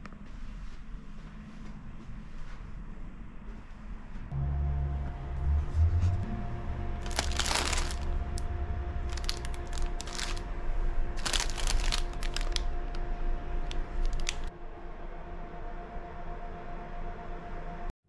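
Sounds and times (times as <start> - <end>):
steady low hum: 0.0 - 17.9
plastic wrapping crinkling: 7.0 - 8.5, 9.1 - 10.4, 11.1 - 13.0, 13.6 - 14.5.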